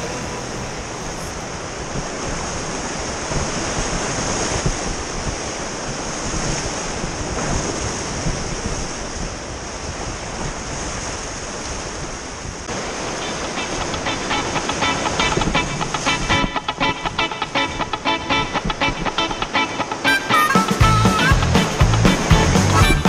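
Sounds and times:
river rapids rushing: 0:00.0 - 0:05.8, 0:12.7 - 0:23.0.

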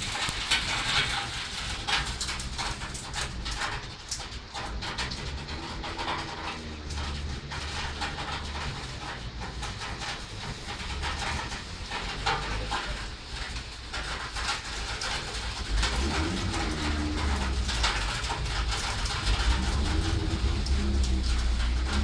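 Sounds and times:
rain hissing: 0:00.0 - 0:22.0
wind low rumble: 0:00.0 - 0:22.0
low hooting tones bending in pitch: 0:19.2 - 0:22.0.

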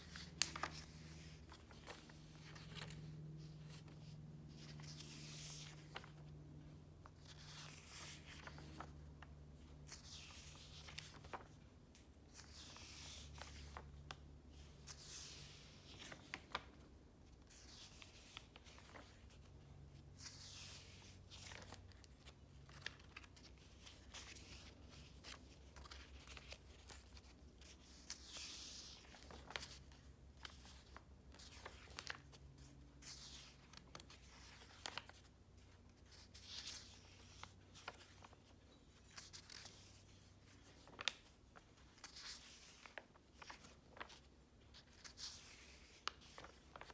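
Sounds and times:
paper pages turning: 0:00.0 - 0:46.9
paper taps and rustles: 0:00.1 - 0:03.0.

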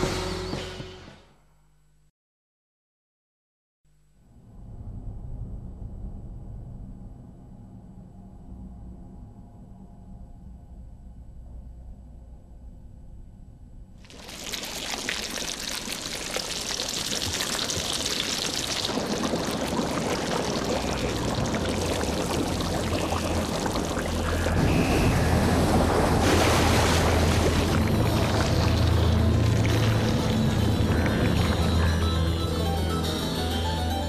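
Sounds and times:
low drone: 0:04.3 - 0:14.0, 0:19.8 - 0:34.0
rushing water-like noise: 0:14.1 - 0:32.0.

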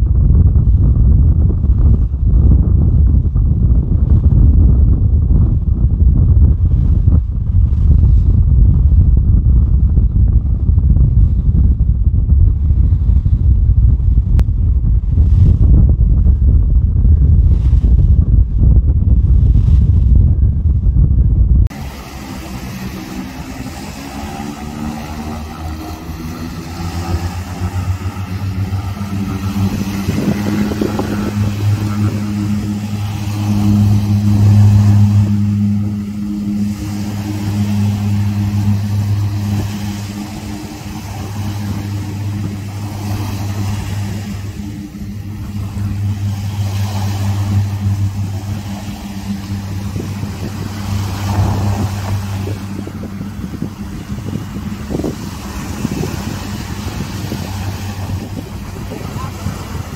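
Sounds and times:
seaplane propeller engines humming: 0:00.0 - 0:59.9.

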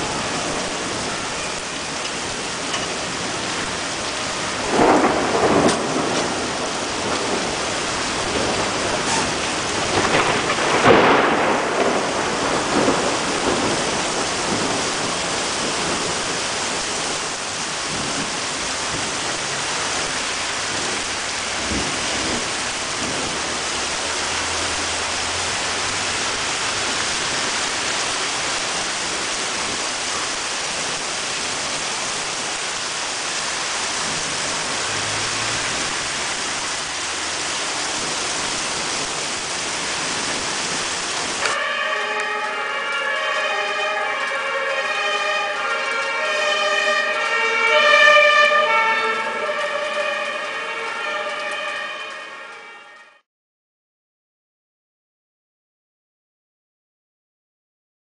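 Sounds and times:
heavy rain pouring: 0:00.0 - 0:53.2
thunder crash: 0:04.3 - 0:17.2, 0:20.7 - 0:23.9.

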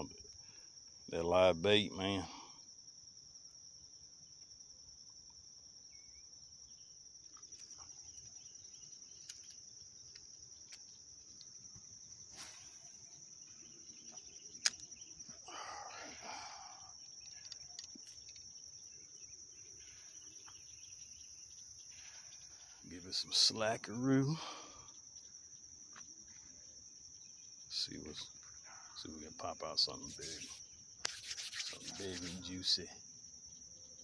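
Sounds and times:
high-pitched insect trill: 0:00.0 - 0:34.0
brief scratchy noise: 0:30.1 - 0:32.5.

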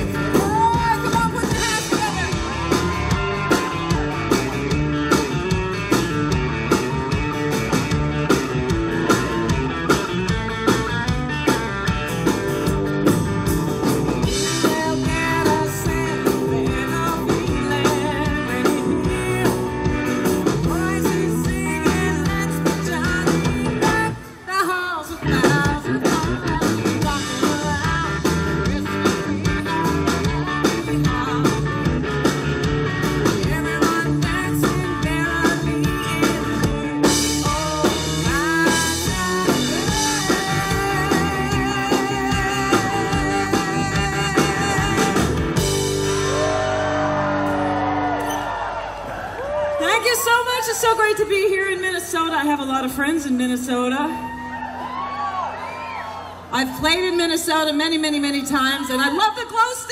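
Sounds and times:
country-rock band playing: 0:00.0 - 0:59.9
person singing lead vocal: 0:14.3 - 0:32.0, 0:33.2 - 0:45.7.

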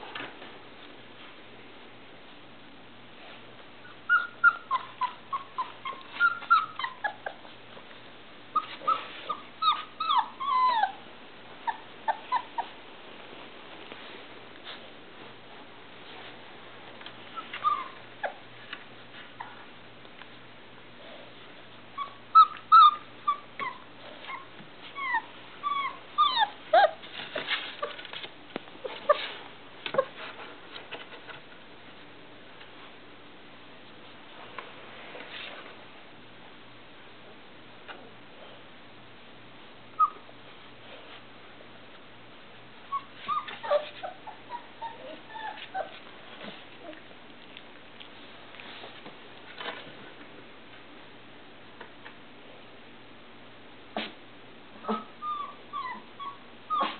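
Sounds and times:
puppies whimpering and yipping: 0:03.9 - 0:07.6, 0:08.5 - 0:12.8, 0:17.3 - 0:18.5, 0:22.0 - 0:27.1, 0:40.0 - 0:40.3, 0:42.9 - 0:46.1, 0:54.8 - 0:56.9.

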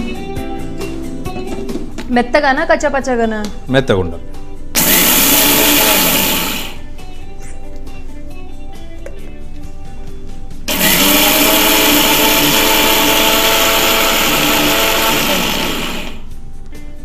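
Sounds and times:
background music: 0:00.0 - 0:17.0
mixer grinder running: 0:04.8 - 0:06.9, 0:10.7 - 0:16.3.

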